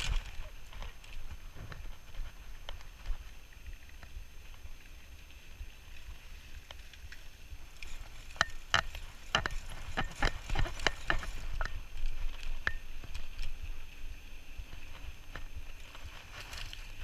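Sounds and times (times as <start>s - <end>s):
wind rumble on microphone: 0.0s - 17.0s
bicycle clicks and rattles: 5.8s - 17.0s.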